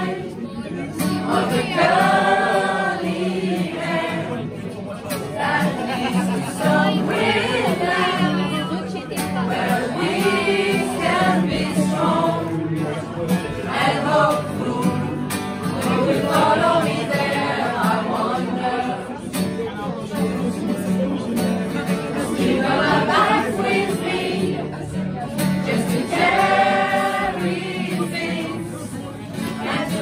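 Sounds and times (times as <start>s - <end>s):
choir singing: 0.0s - 0.5s, 1.2s - 4.5s, 5.4s - 8.7s, 9.4s - 12.7s, 13.6s - 15.2s, 15.8s - 19.2s, 22.2s - 24.7s, 25.6s - 30.0s.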